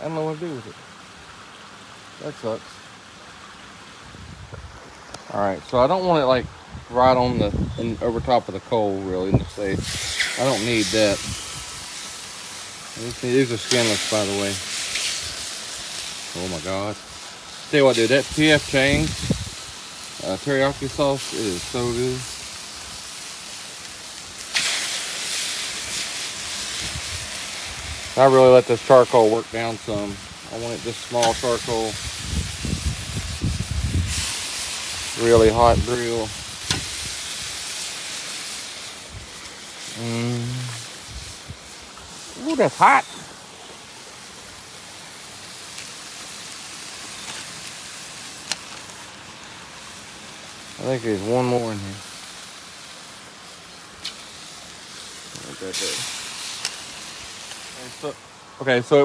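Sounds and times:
chicken sizzling on a grill: 0.0s - 59.0s
crackles and pops: 9.6s - 28.8s, 29.6s - 49.7s, 54.0s - 58.1s.

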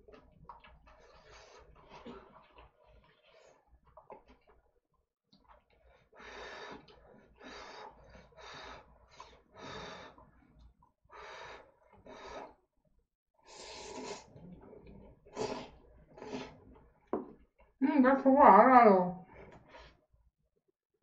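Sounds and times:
person slurping noodles: 13.5s - 16.9s.

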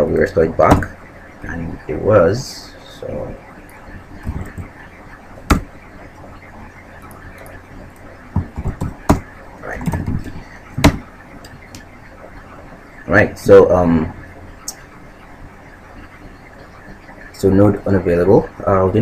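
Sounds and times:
low murmuring: 0.0s - 11.8s.

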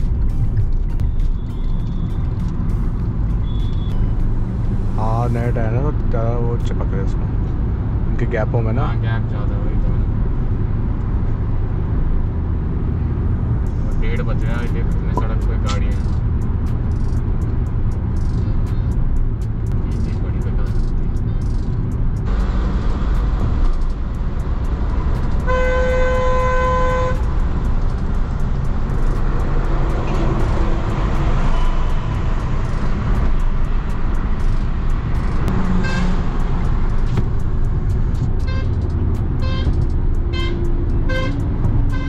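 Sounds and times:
car cabin road and engine noise: 0.0s - 42.0s
car horn: 3.3s - 4.2s, 25.2s - 27.6s, 35.5s - 36.6s, 38.4s - 42.0s
quick ticks: 14.6s - 22.2s, 27.1s - 41.9s.

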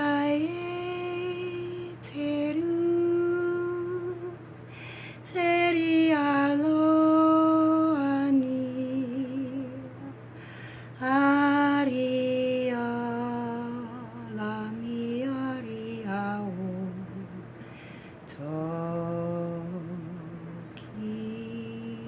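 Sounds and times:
woman singing unaccompanied: 0.0s - 17.6s, 18.2s - 22.0s
person breathing in: 4.7s - 5.2s, 10.3s - 11.0s, 17.6s - 18.2s.

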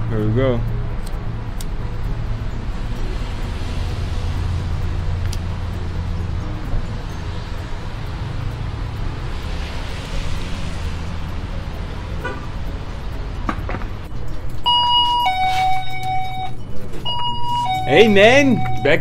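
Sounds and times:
low rumble: 0.8s - 14.5s
two-tone electronic door chime: 14.6s - 19.0s.

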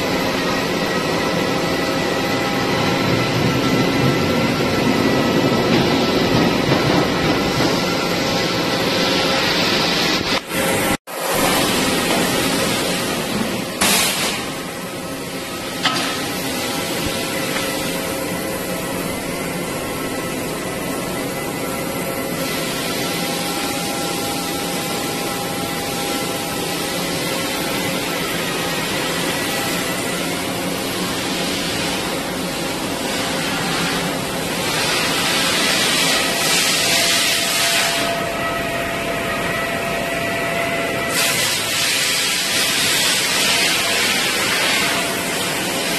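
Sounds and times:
machinery hiss: 41.1s - 45.9s.

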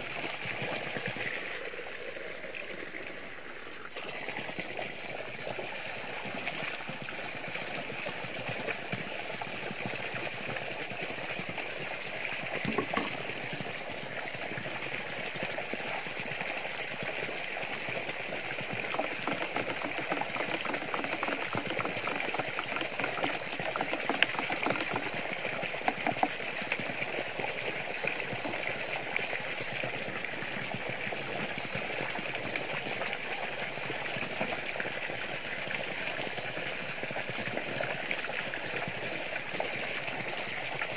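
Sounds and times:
water running into barrel: 6.2s - 31.2s
short knocks: 12.6s - 13.2s, 19.0s - 25.2s, 25.8s - 26.3s.

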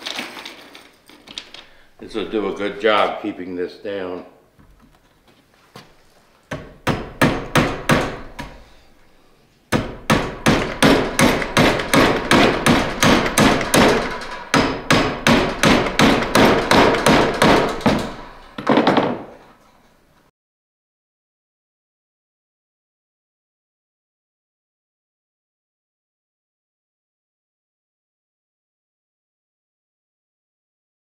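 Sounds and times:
hammer blows on wood: 9.7s - 18.6s.

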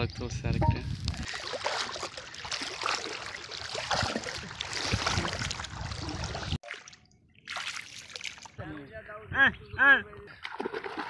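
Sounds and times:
small water splashes: 1.0s - 8.6s, 10.3s - 11.0s
water sloshing from wading: 1.2s - 8.6s, 10.4s - 11.0s.

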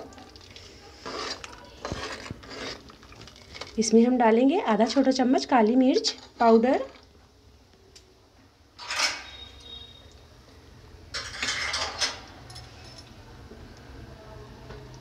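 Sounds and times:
clattering and scraping in pot: 0.3s - 3.8s, 5.9s - 7.1s, 8.8s - 9.8s, 11.1s - 12.9s.

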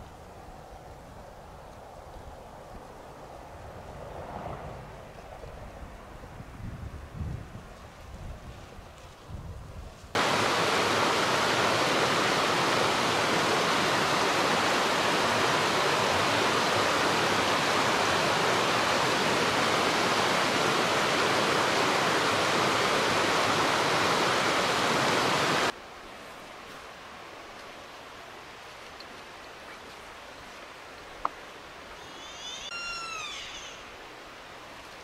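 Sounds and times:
running water rushing: 10.2s - 35.0s.

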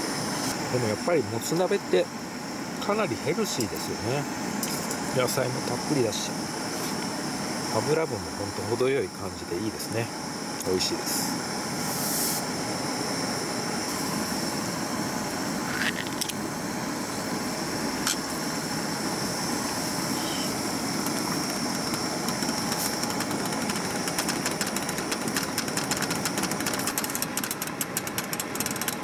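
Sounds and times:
gas stove burner hissing: 0.0s - 29.0s
rapid ticking: 21.0s - 29.0s.

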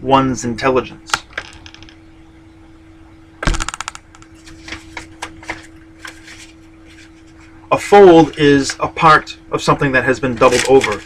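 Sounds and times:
faint steady hum: 0.0s - 11.0s
rapid clicks on desk: 3.4s - 4.3s.

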